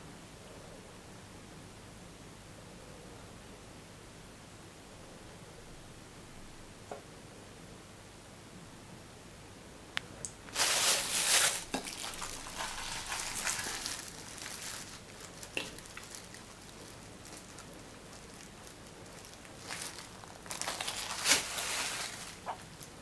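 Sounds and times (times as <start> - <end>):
plastic bag crinkling: 10.5 - 23.0.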